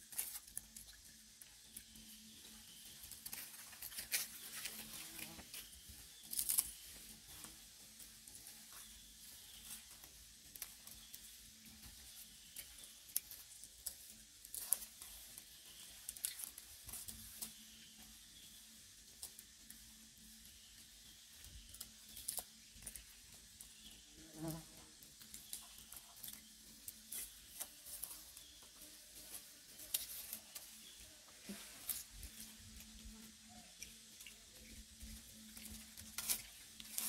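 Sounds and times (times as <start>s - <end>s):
dry leaf litter crackling: 25.0s - 37.0s.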